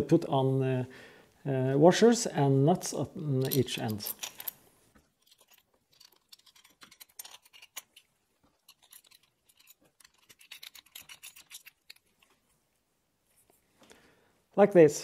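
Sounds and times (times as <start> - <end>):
metallic clicks of washers and nuts: 3.2 - 12.4.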